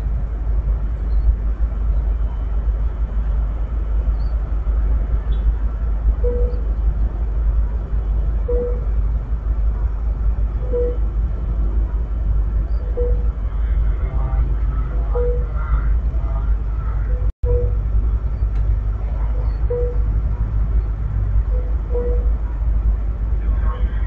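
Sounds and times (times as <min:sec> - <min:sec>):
idling trains rumbling: 0:00.0 - 0:24.0
short single-pitched beep: 0:06.2 - 0:06.6, 0:10.6 - 0:11.0, 0:19.6 - 0:20.0, 0:21.5 - 0:22.3.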